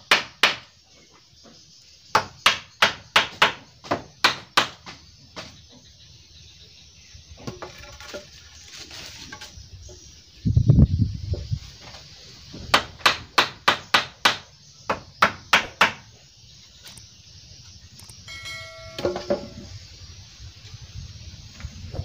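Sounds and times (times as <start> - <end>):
hammer striking bamboo: 18.3 - 19.7
chiming sound effect: 18.3 - 19.8.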